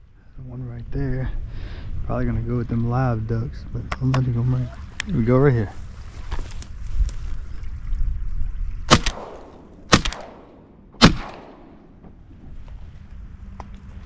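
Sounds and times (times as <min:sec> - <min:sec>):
steady low rumble: 0:00.0 - 0:14.0
shotgun shots with echo: 0:08.9 - 0:12.2.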